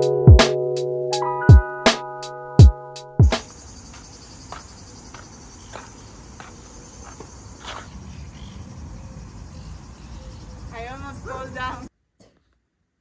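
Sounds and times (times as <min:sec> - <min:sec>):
insects chirring: 0:03.3 - 0:11.9.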